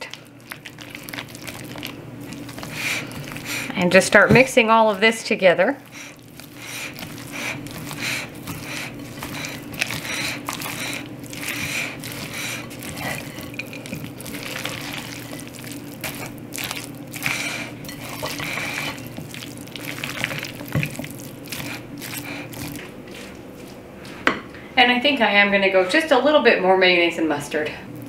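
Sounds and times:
spatula stirring wet salad: 0.0 - 23.4
low steady hum: 0.0 - 28.0.

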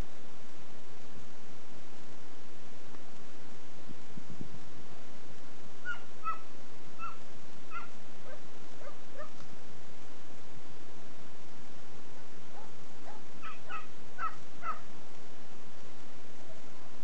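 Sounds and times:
dogs yipping: 5.9 - 6.4, 7.0 - 9.4, 12.6 - 14.8.

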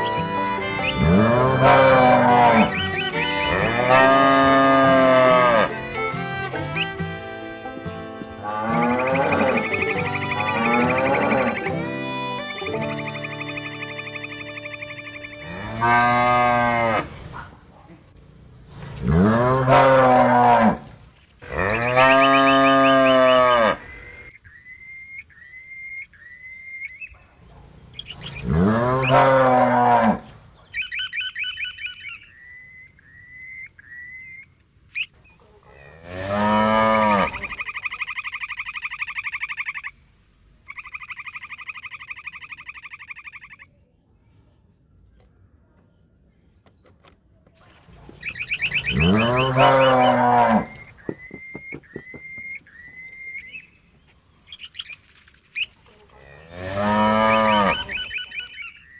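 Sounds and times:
cows mooing: 0.4 - 6.1, 8.4 - 11.9, 15.4 - 17.3, 19.0 - 24.3, 28.2 - 30.3, 35.7 - 37.6, 48.6 - 50.9, 56.2 - 58.2
buzzing pulsing animal calls: 48.4 - 52.6.

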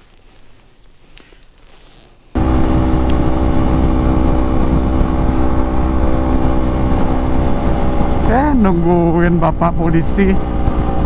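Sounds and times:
motorcycle engine cruising: 1.2 - 11.0
low wind rumble: 2.4 - 11.0.

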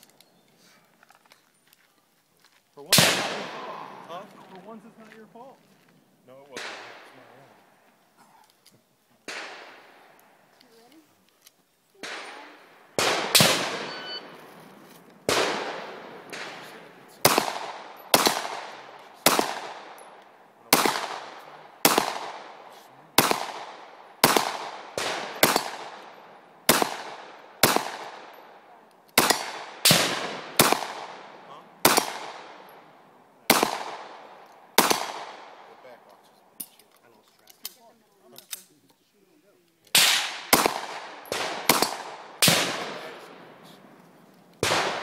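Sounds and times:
handgun shots with echo: 2.9 - 4.1, 13.0 - 14.4, 15.3 - 22.6, 23.2 - 28.4, 29.1 - 32.8, 33.5 - 34.2, 34.8 - 35.6, 39.9 - 43.4, 44.6 - 45.0.

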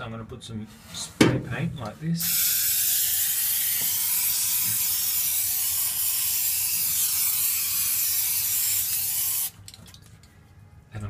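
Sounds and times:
aerosol spray can hissing: 2.2 - 9.6.

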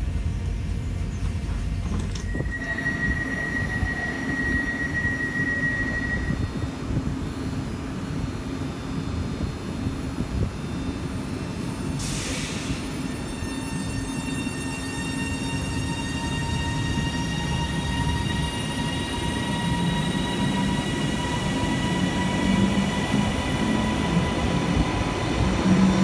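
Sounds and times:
electric train humming: 0.0 - 26.0
steady high tone: 2.3 - 6.8.

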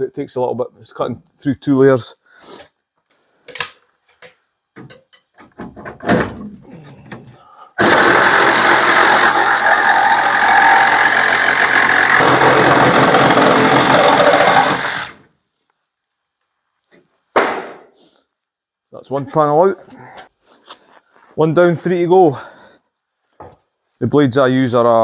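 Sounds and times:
reciprocating saw cutting metal: 7.8 - 15.2.

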